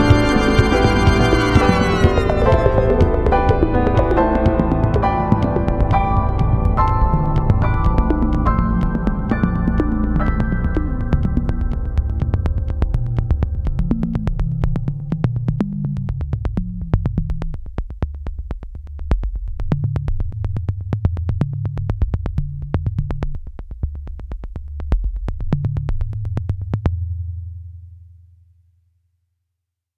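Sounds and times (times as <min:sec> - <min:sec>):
electronic music: 0:00.0 - 0:15.1
sharp ticking beat: 0:00.0 - 0:15.1
synthesizer bass line: 0:00.0 - 0:17.2.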